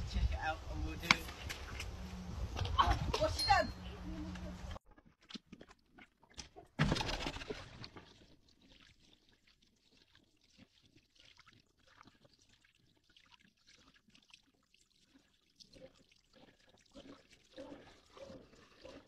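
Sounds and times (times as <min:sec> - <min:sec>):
water splashing: 0:05.0 - 0:19.0.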